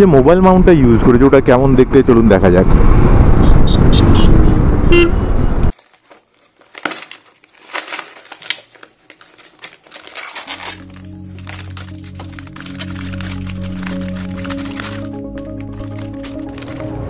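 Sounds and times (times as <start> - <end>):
motorcycle riding: 2.6 - 5.7
horn toot: 3.4 - 5.4
cardboard tearing and rustling: 5.7 - 17.0.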